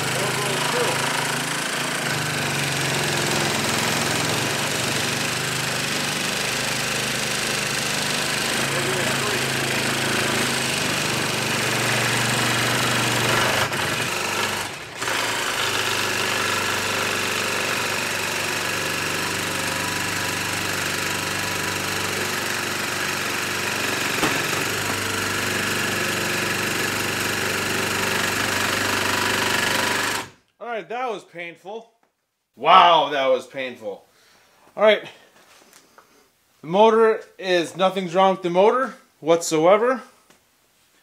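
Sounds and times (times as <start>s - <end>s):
jigsaw cutting through wood: 0.0s - 30.4s.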